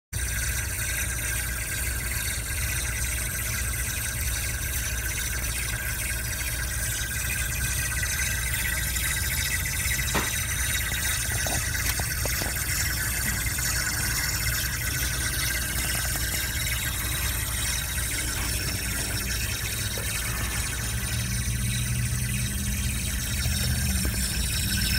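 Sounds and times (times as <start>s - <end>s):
low steady rumble: 0.2s - 24.9s
refrigerant hissing: 8.7s - 24.9s.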